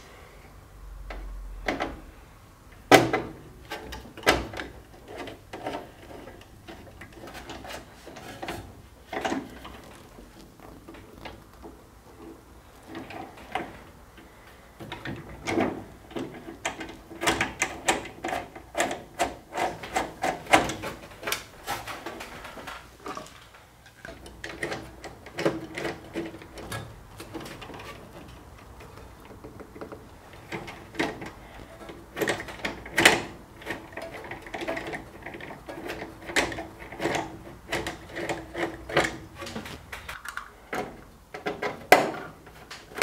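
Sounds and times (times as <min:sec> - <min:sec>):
tools clicking on metal panel: 0:12.2 - 0:23.3, 0:24.0 - 0:43.0.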